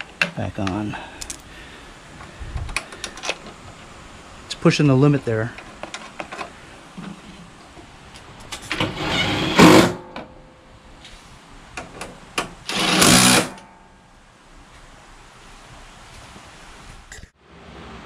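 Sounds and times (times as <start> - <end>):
parts clicking: 0.0 - 1.5
cordless power driver: 12.7 - 13.5.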